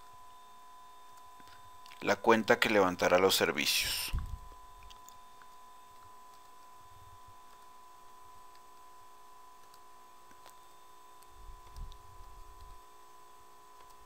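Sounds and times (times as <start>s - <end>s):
high electrical hum: 0.0s - 14.0s
computer mouse clicks: 9.6s - 10.6s, 13.8s - 14.0s.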